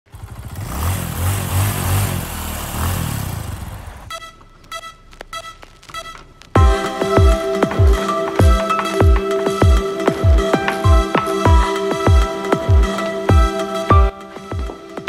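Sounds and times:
motor scooter engine running: 0:00.1 - 0:04.1
music with heavy bass hits: 0:06.6 - 0:15.0.

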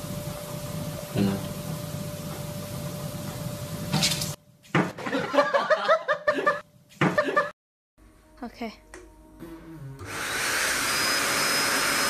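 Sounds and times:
person laughing: 0:05.0 - 0:07.6.

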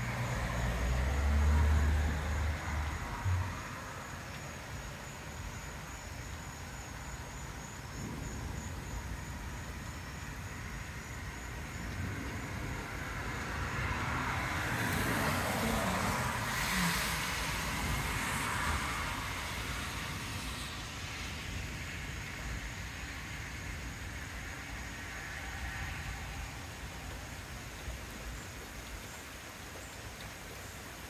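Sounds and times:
road vehicle passing: 0:00.0 - 0:05.0, 0:10.6 - 0:21.8.

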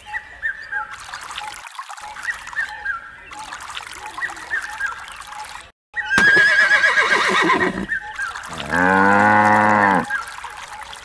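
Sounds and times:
horse whinnying: 0:06.1 - 0:07.9
cow mooing: 0:08.5 - 0:10.1.

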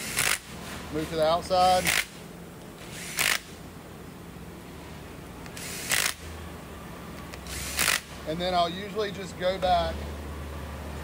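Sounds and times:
cordless drill spinning: 0:01.6 - 0:02.1, 0:02.8 - 0:03.5, 0:05.4 - 0:06.2, 0:07.3 - 0:08.1.

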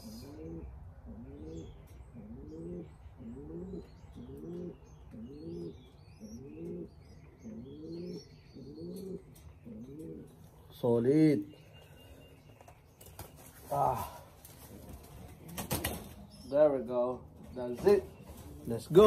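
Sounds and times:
pigeons cooing: 0:00.0 - 0:11.0, 0:13.6 - 0:19.0.

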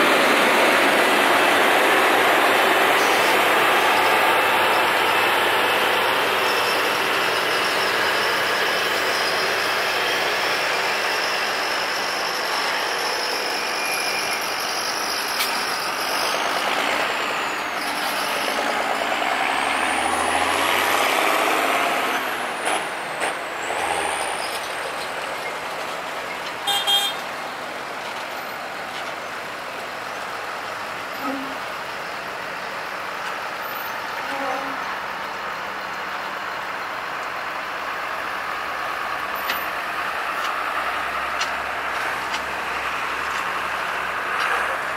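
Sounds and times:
tractor passing: 0:15.6 - 0:26.6, 0:35.0 - 0:44.9.

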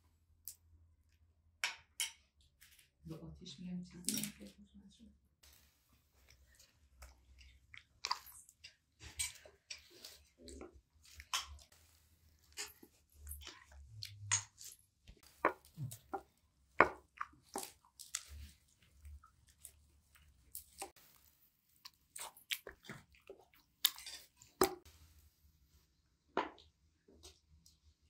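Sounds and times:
people chewing and crunching: 0:05.4 - 0:25.2, 0:26.4 - 0:28.0.

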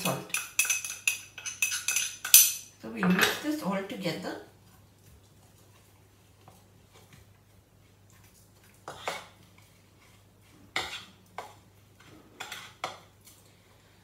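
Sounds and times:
spoon scraping a bowl: 0:00.0 - 0:02.6, 0:08.8 - 0:13.1.

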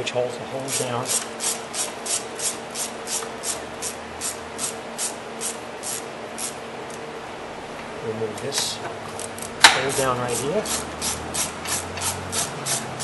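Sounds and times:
ratchet wrench clicking: 0:09.8 - 0:13.0.

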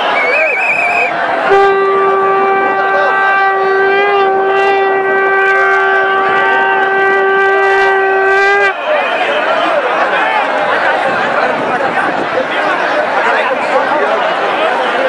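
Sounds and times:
crowd chatter: 0:00.0 - 0:15.0
conch shell blast: 0:01.5 - 0:08.8.

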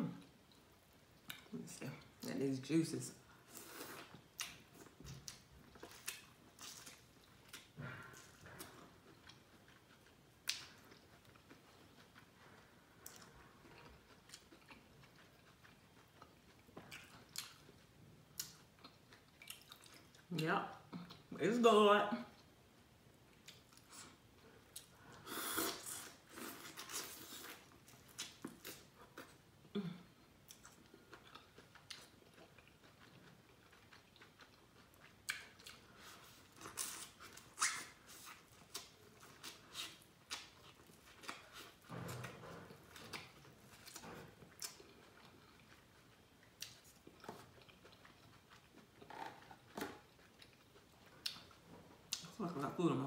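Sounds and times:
chewing and lip smacks: 0:04.0 - 0:21.3, 0:23.3 - 0:24.9, 0:30.4 - 0:41.8, 0:42.9 - 0:52.4.

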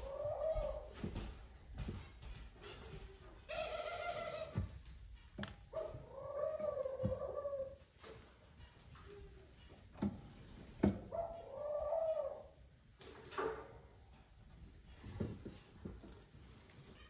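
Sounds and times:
dove cooing: 0:00.0 - 0:01.1, 0:03.5 - 0:04.7, 0:05.7 - 0:07.9, 0:11.1 - 0:12.6.

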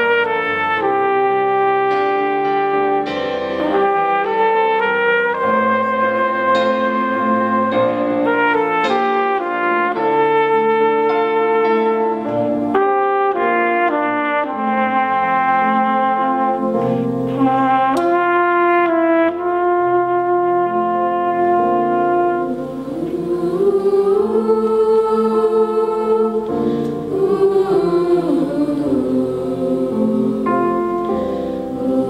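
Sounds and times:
trumpet held notes: 0:00.0 - 0:23.0
small band playing: 0:00.0 - 0:32.0
voices singing: 0:22.5 - 0:32.0.

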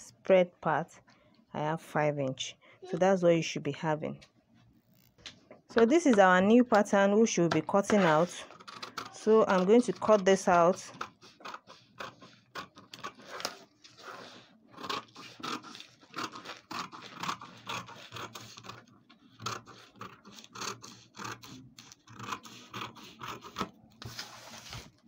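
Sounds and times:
scissors snipping paper: 0:07.7 - 0:13.6, 0:14.3 - 0:24.2
paper rustling: 0:24.0 - 0:25.0.

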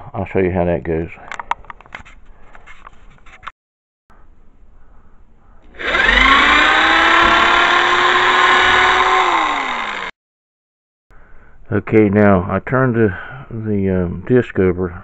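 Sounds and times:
electric drill boring into wood: 0:05.7 - 0:10.2.

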